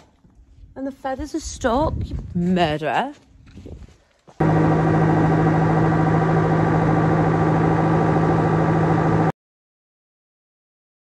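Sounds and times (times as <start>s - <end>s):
pressure washer humming: 4.4s - 9.3s.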